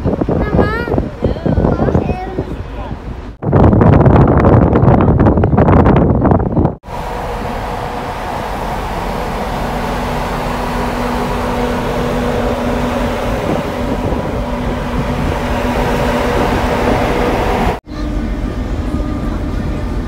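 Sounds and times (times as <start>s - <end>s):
low hum: 6.8s - 20.0s
vehicle engine drone: 6.8s - 20.0s.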